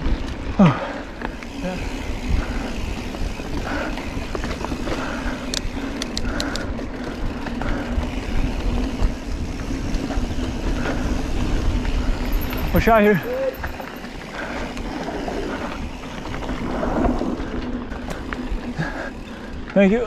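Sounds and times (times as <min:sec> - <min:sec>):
wind buffeting microphone: 0:00.0 - 0:19.6
bike tyres rumbling on dirt: 0:00.0 - 0:20.0
sharp clicks: 0:05.4 - 0:06.8.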